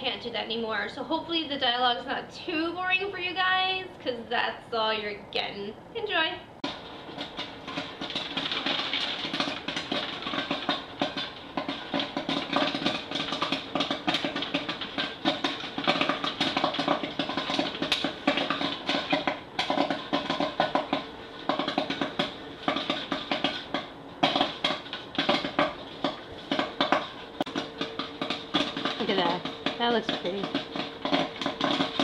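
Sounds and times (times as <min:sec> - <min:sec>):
popcorn machine motor hum: 0:05.3 - 0:32.0
popcorn kernels crackling: 0:06.6 - 0:32.0.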